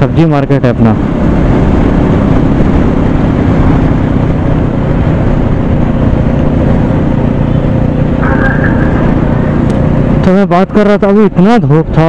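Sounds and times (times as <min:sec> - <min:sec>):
motorcycle engine hum: 0:00.0 - 0:12.0
wind rush on microphone: 0:00.9 - 0:10.3.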